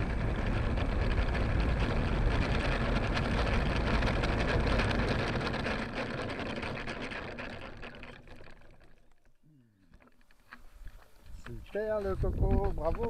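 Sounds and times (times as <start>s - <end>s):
model airplane engine: 0.0s - 9.3s.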